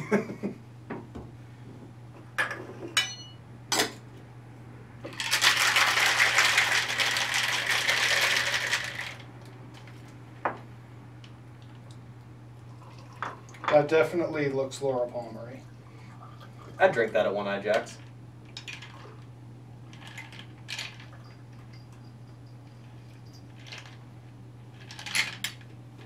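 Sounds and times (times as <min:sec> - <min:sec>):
cocktail shaker rattling: 0:05.2 - 0:09.2.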